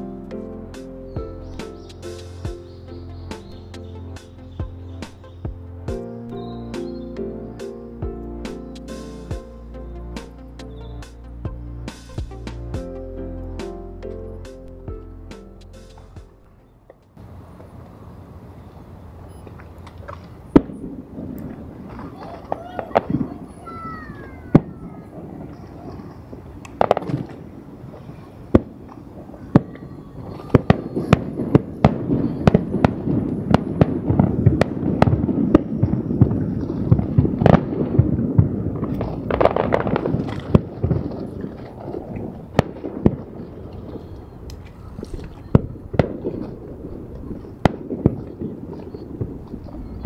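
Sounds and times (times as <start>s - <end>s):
fireworks bursting with sharp bangs: 20.5s - 44.5s, 45.1s - 50.0s.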